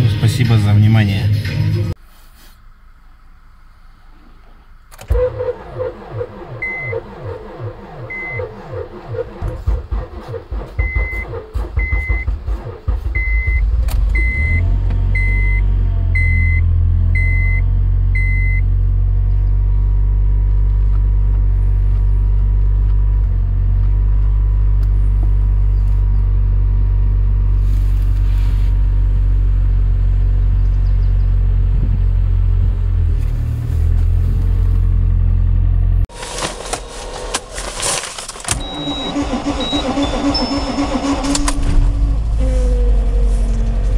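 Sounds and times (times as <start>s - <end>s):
car engine idling: 2.8s - 43.9s
starter motor cranking: 4.9s - 14.4s, 36.7s - 42.0s.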